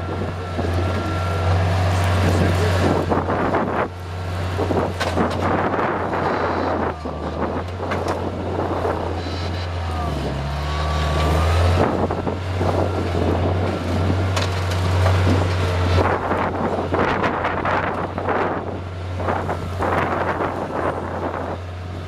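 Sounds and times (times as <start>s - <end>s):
skid steer engine under load: 0.0s - 22.0s
wind buffeting microphone: 2.1s - 9.2s, 11.4s - 22.0s.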